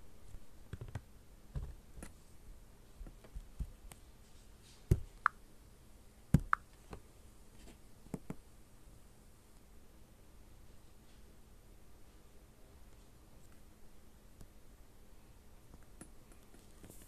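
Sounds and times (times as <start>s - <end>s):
fingertip taps on touchscreen: 6.4s - 6.7s.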